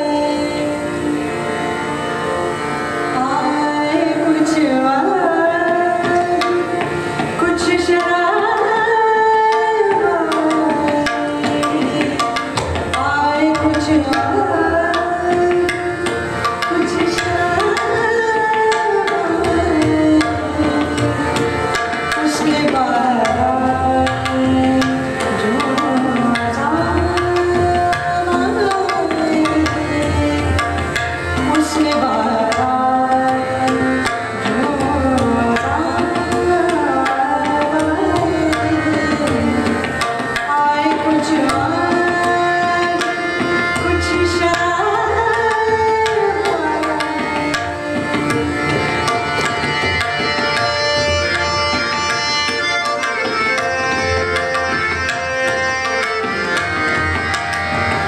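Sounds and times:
woman singing: 0:00.0 - 0:00.9, 0:03.2 - 0:06.8, 0:07.4 - 0:16.0, 0:16.7 - 0:21.3, 0:22.2 - 0:30.8, 0:31.4 - 0:39.8, 0:40.4 - 0:47.6
harmonium: 0:00.0 - 0:58.0
tabla strokes: 0:00.0 - 0:58.0.

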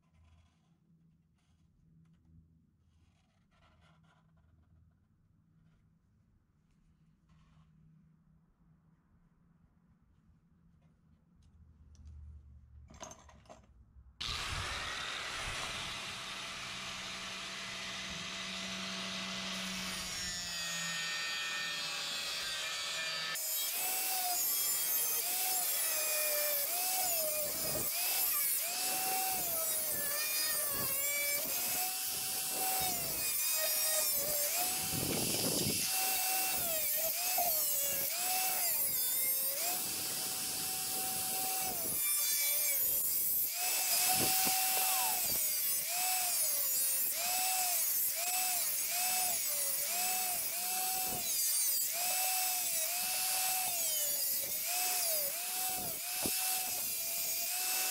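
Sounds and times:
angle grinder motor running: 0:14.2 - 0:57.9
grinder cutting sheet steel: 0:14.2 - 0:57.9.

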